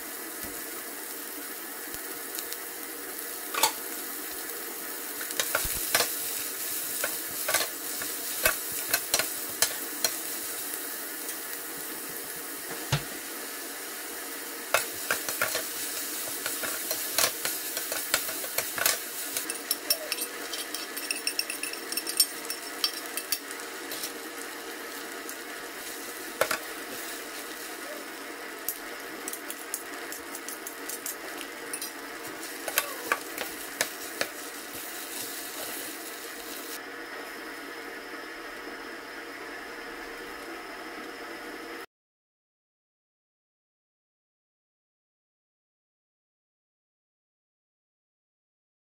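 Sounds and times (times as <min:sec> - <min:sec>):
onions sizzling in hot oil: 0:00.0 - 0:41.8
metal spoon scraping pan: 0:16.5 - 0:23.1.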